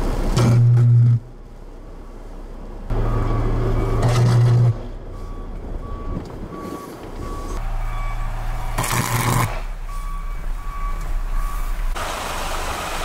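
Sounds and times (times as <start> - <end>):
back-up alarm beeping: 2.9 - 11.7
power line arcing buzz: 8.8 - 9.6.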